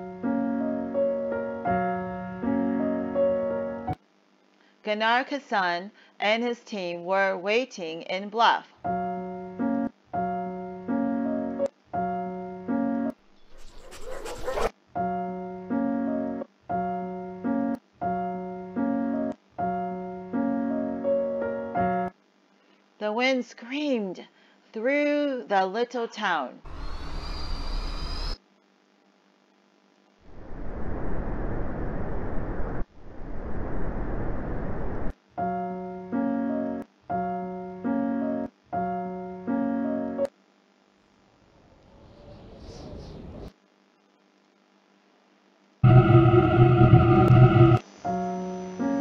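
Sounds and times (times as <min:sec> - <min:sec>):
piano chords: 0:00.0 - 0:04.0, 0:17.0 - 0:22.1, 0:45.8 - 0:47.8
musical jingle of held chords: 0:45.8 - 0:47.8.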